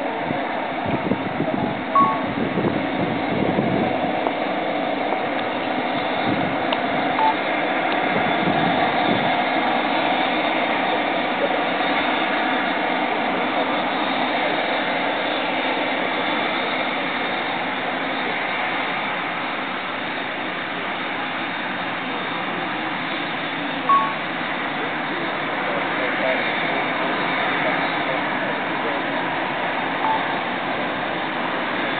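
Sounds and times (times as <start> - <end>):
distant jet engines rumbling: 0.0 - 31.9
short high beep: 2.0 - 2.4, 7.2 - 7.4, 23.9 - 24.2, 30.0 - 30.3.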